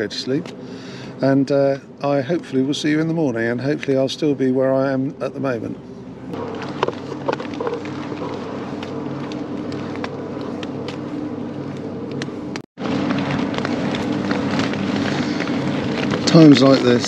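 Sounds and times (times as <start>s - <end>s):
wind turbine machinery humming: 0.0s - 17.0s.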